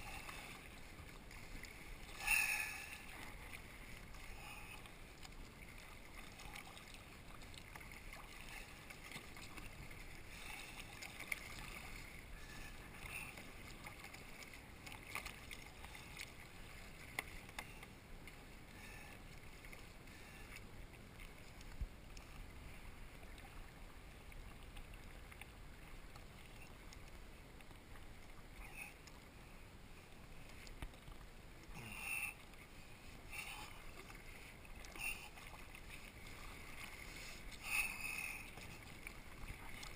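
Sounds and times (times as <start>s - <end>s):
paddle splashes: 0.0s - 39.9s
water washing along hull: 0.0s - 39.9s.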